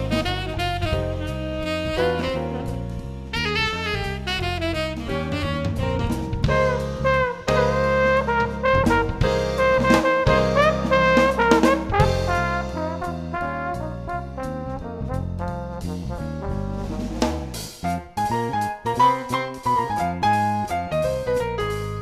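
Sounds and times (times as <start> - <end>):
jazz music with brass horns: 0.0 - 22.0
walking bass line: 0.0 - 22.0.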